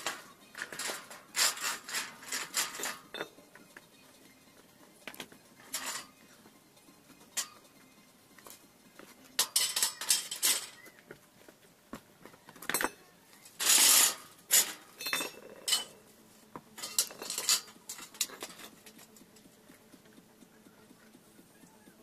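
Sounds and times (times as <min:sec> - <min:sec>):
metal bars clinking and clattering: 0:00.0 - 0:03.6, 0:05.0 - 0:06.2, 0:07.3 - 0:07.7, 0:09.4 - 0:11.0, 0:12.5 - 0:16.0, 0:16.8 - 0:19.5.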